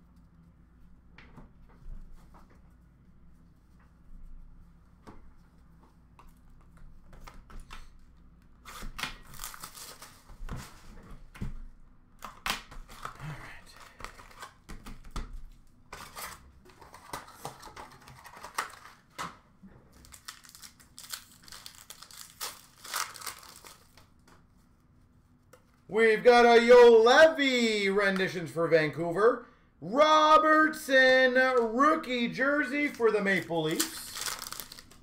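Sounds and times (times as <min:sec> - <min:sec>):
foil wrappers tearing and crinkling: 0:08.7 - 0:10.3, 0:16.0 - 0:19.1, 0:19.9 - 0:24.1, 0:32.8 - 0:35.0.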